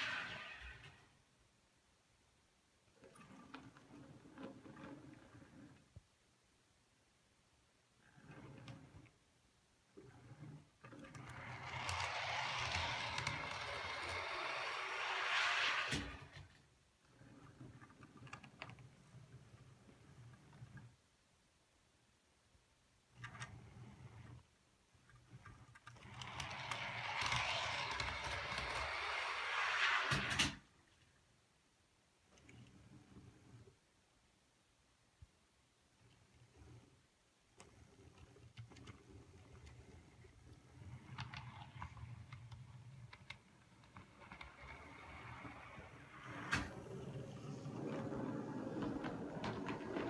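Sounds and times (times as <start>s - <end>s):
model train rolling on track: 0.0s - 1.1s, 10.0s - 20.8s, 25.2s - 30.6s, 37.6s - 50.0s
model locomotive motor rumble: 11.1s - 16.3s, 25.9s - 30.2s.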